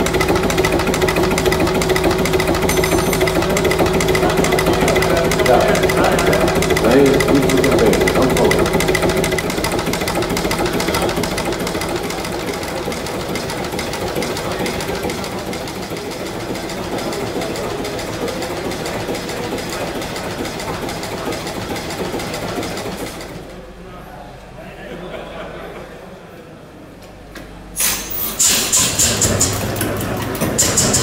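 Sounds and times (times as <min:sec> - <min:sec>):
diesel engine knocking: 0:00.0 - 0:23.5, 0:28.4 - 0:31.0.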